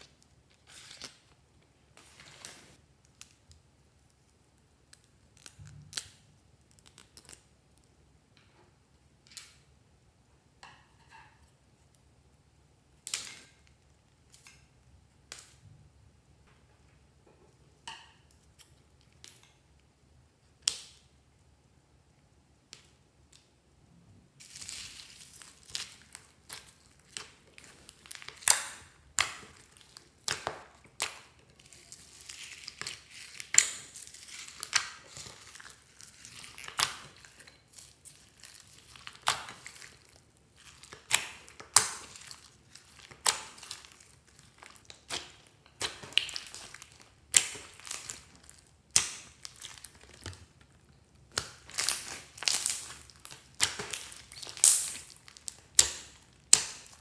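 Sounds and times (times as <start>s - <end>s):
slime crackling and popping: 2.4s - 7.9s, 24.4s - 57.0s.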